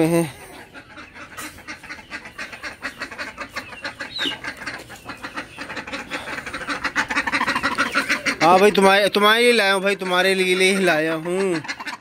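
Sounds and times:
ducks quacking: 0:00.0 - 0:12.0
bird chirp: 0:00.7 - 0:08.7.

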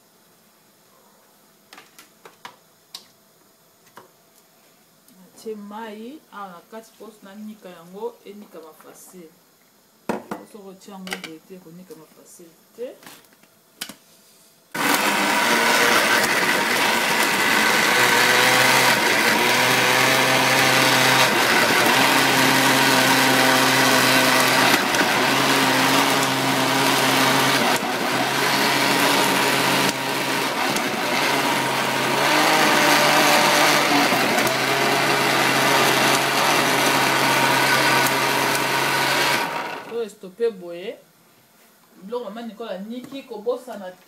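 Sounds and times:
electric blender running: 0:14.8 - 0:39.9.

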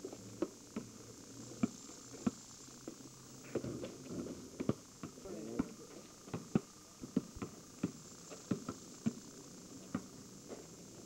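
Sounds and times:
basketball bouncing on pavement: 0:01.6 - 0:02.4, 0:03.5 - 0:09.2, 0:09.8 - 0:10.6.

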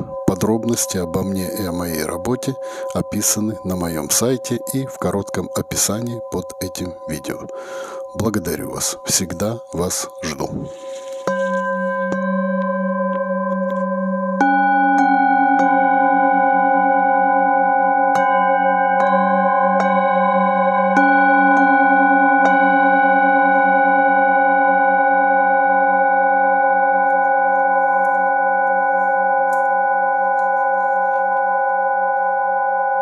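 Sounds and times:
metal singing bowls ringing: 0:00.0 - 0:33.0.

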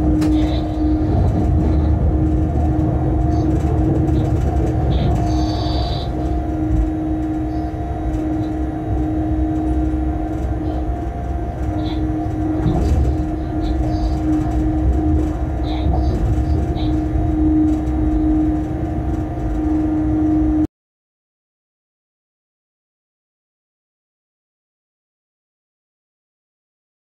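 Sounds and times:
locomotive equipment hum: 0:00.0 - 0:20.7
wheels rumbling on rail: 0:00.0 - 0:20.7.

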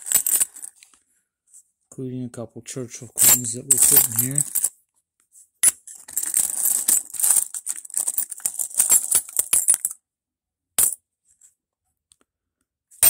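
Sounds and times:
coins clinking and jingling: 0:00.0 - 0:00.7, 0:03.2 - 0:04.7, 0:05.6 - 0:09.9.

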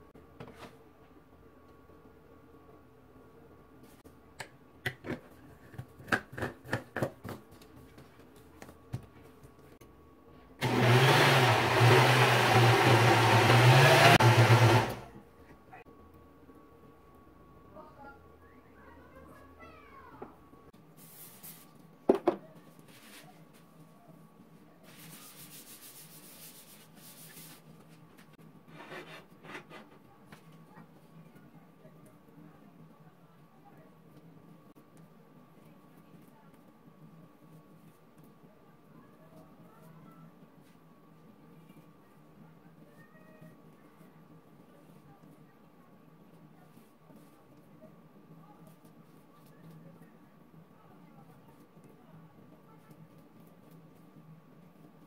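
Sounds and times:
paper towel wiping griddle: 0:24.8 - 0:27.7.

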